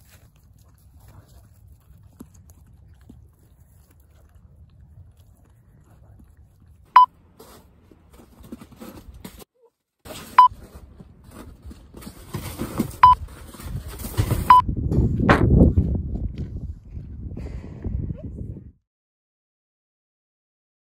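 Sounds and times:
low rustling rumble: 0:12.9 - 0:18.8.

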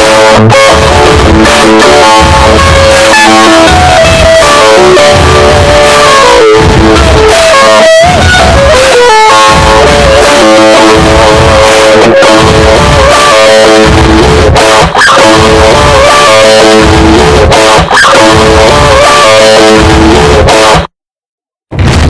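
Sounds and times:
bass line: 0:00.0 - 0:20.9, 0:21.7 - 0:22.0
electric guitar lead: 0:00.0 - 0:20.9.

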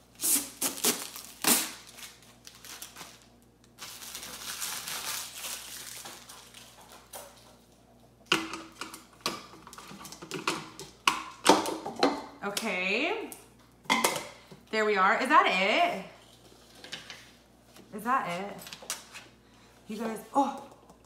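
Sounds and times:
plastic bag crinkling: 0:00.2 - 0:07.4.

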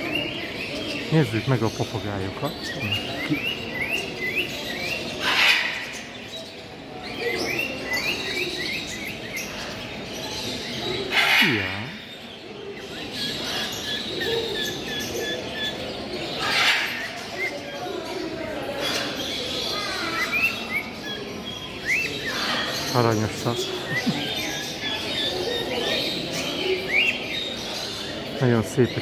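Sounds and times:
caged birds chirping and calling: 0:00.0 - 0:29.0.

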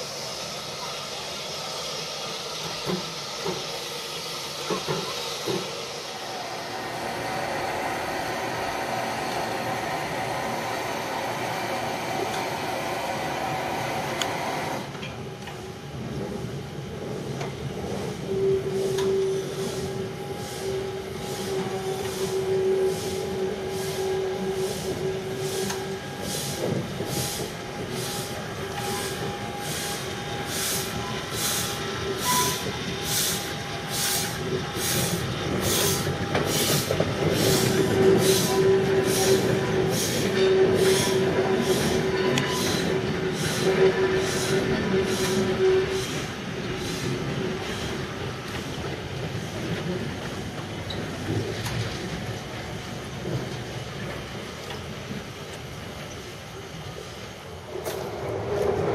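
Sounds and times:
steam locomotive exhaust chuffs: 0:17.1 - 0:56.3.

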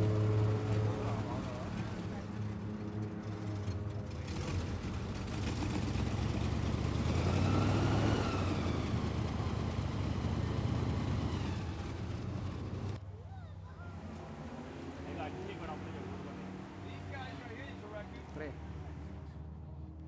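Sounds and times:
airboat engine idling: 0:00.0 - 0:07.1, 0:08.4 - 0:13.0.

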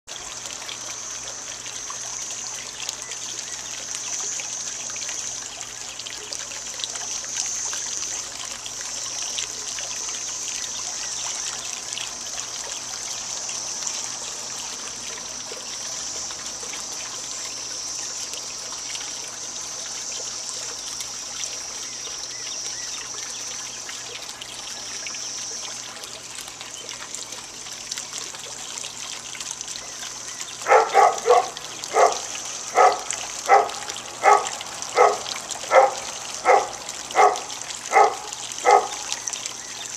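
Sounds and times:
trickling water: 0:00.0 - 0:39.9.

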